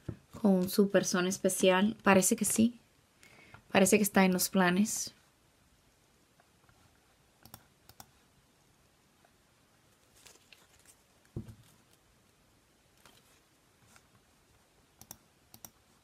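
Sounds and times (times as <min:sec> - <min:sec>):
faint clicks: 0:07.4 - 0:08.1, 0:15.0 - 0:15.8.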